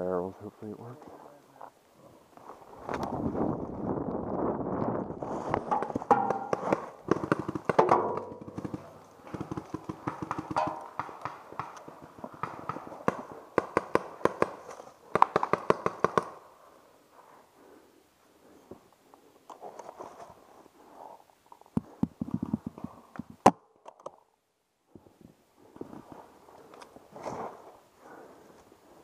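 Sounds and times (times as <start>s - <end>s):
paintballs hitting metal drum: 5.7s - 11.7s.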